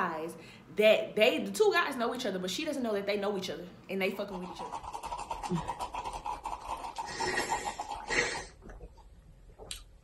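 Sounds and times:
slurping through a straw: 4.4s - 9.0s.

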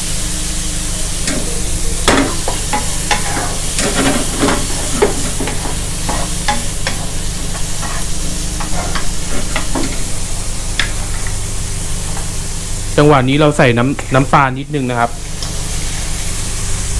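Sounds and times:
shrimp sizzling in hot oil: 0.0s - 13.0s, 14.8s - 16.9s
wooden spatula scraping a pan: 2.3s - 10.2s.

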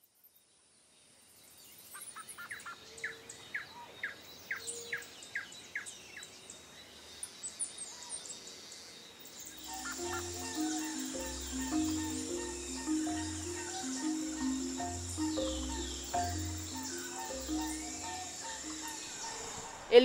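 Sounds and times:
birds calling: 9.5s - 19.9s
background music: 9.6s - 19.6s.

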